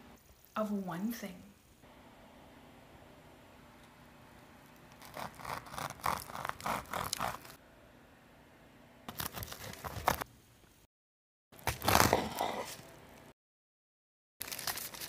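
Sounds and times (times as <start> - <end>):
toasted sandwich crackling: 4.7 - 7.6.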